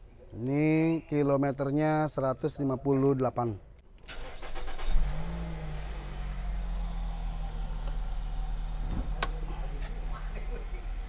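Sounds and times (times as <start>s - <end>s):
engine starter cranking: 4.0s - 5.6s
car engine idling: 4.1s - 11.0s.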